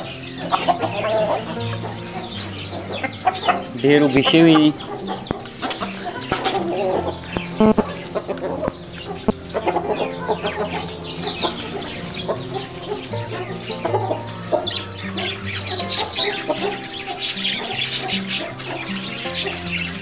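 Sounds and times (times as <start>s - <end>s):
hens clucking: 0.0s - 20.0s
hens pecking taps: 0.0s - 20.0s.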